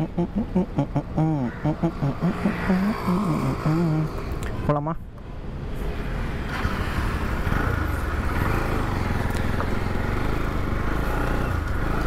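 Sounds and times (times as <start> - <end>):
motorcycle engine riding: 6.3 - 12.0.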